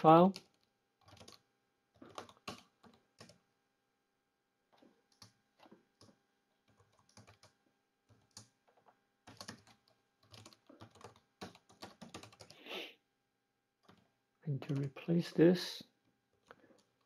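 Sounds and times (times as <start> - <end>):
typing on computer keyboard: 0.3 - 1.4, 2.0 - 3.4, 5.1 - 12.6, 13.8 - 15.1, 16.4 - 17.0.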